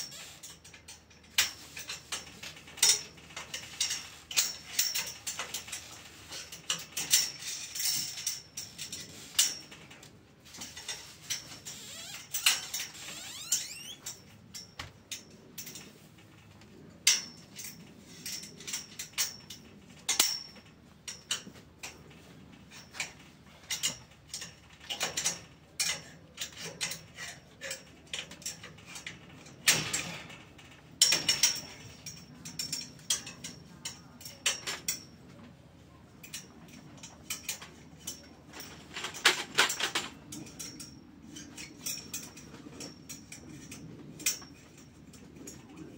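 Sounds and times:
hand tool clicking on steel pipes: 0:00.0 - 0:09.7.

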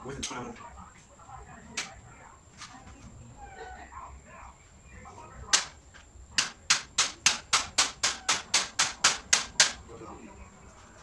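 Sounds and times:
hammer knocking on metal: 0:06.4 - 0:09.8.

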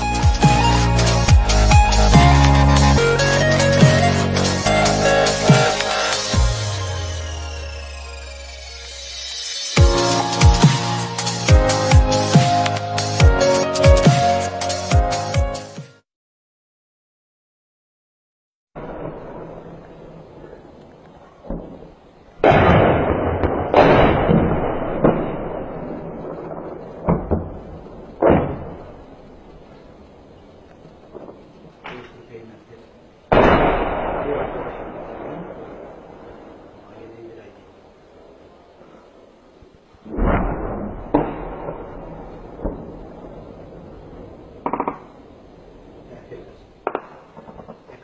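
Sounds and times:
heavy blasts with rolling echo: 0:00.0 - 0:14.5, 0:18.8 - 0:32.6, 0:33.3 - 0:38.6, 0:40.0 - 0:48.0
sharp cracks: 0:05.4 - 0:06.4, 0:18.8 - 0:32.6, 0:33.3 - 0:37.4, 0:40.0 - 0:48.0
explosion boom with rumble: 0:18.8 - 0:20.8, 0:21.4 - 0:30.0, 0:33.3 - 0:37.0, 0:40.0 - 0:48.0.

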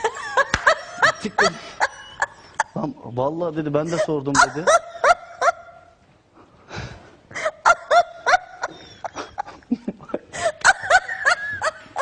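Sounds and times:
people laughing: 0:00.0 - 0:02.8, 0:07.5 - 0:12.0.

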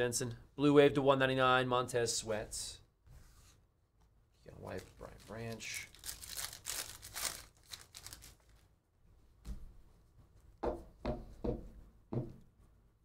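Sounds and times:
foil wrapper tearing and crinkling: 0:04.6 - 0:08.7.

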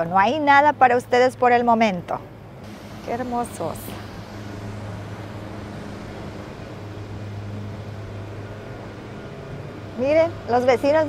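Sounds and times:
propane burner hum and hiss: 0:02.4 - 0:11.0.

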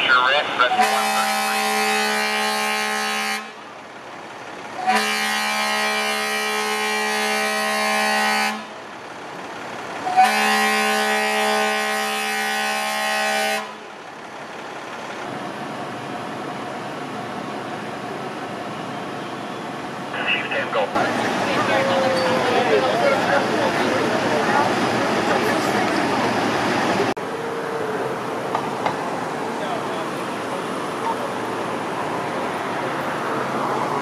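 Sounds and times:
running engines humming: 0:00.0 - 0:34.0
fire truck air horn blasts: 0:00.7 - 0:03.7, 0:04.8 - 0:08.8, 0:10.1 - 0:13.9.

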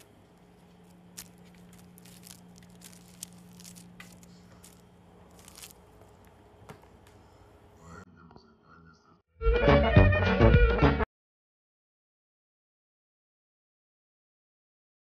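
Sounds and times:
steady low hum: 0:00.0 - 0:09.2.

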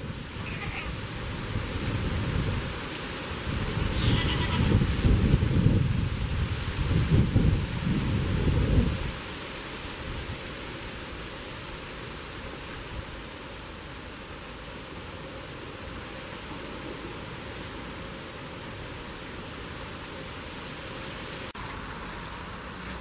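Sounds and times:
wind buffeting microphone: 0:00.0 - 0:09.2.

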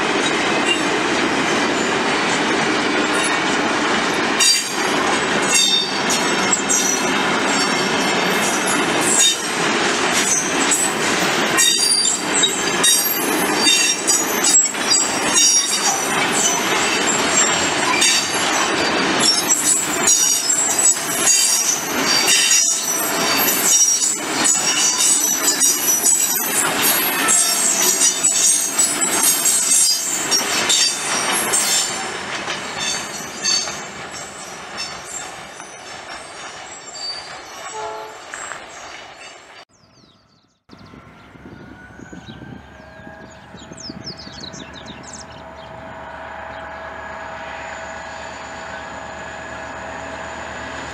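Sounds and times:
train wheels squealing: 0:00.0 - 0:01.0, 0:04.4 - 0:50.5
train clattering over rails: 0:00.0 - 0:39.7.

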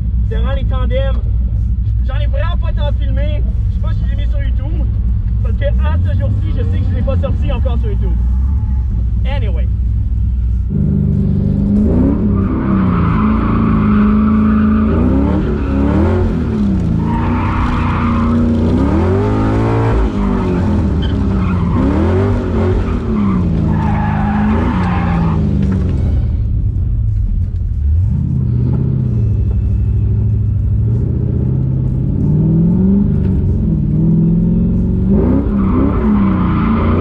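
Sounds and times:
car engine revving: 0:03.5 - 0:37.0
tyre squeal: 0:12.0 - 0:26.4, 0:35.2 - 0:37.0.

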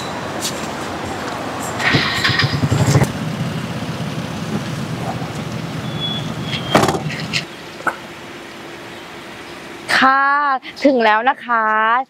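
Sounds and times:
car engine rumble: 0:00.0 - 0:10.9
short high beeps: 0:05.8 - 0:06.8
sharp knocks: 0:06.7 - 0:07.1.

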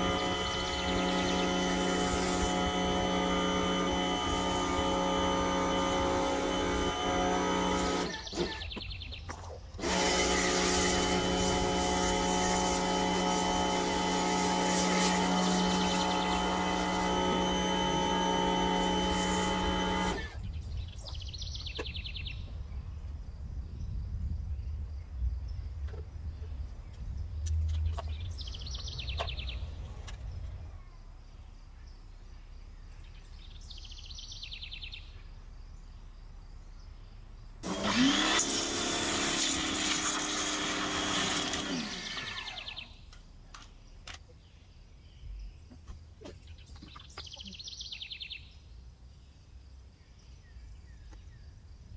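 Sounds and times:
pressure washer spraying water: 0:00.0 - 0:08.7, 0:09.8 - 0:20.4, 0:37.6 - 0:43.0
pressure washer motor humming: 0:00.0 - 0:08.8, 0:09.8 - 0:20.5, 0:37.6 - 0:43.1
bird chirping: 0:08.0 - 0:09.8, 0:20.1 - 0:37.6, 0:42.3 - 0:51.9.

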